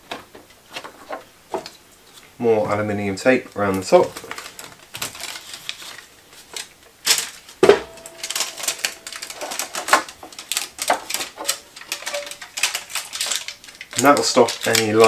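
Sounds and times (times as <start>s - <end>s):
foil tape crackling and ripping: 3.6s - 15.0s.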